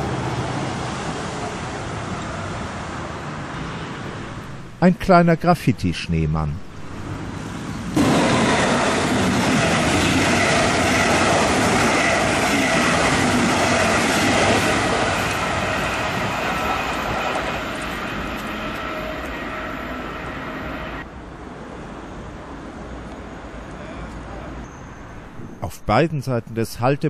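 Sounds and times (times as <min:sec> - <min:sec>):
train wheels on rails: 0:07.0 - 0:21.1.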